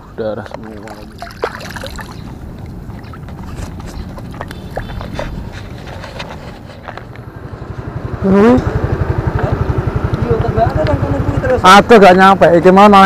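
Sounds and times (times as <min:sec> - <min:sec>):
hands splashing in water: 0:00.7 - 0:03.2.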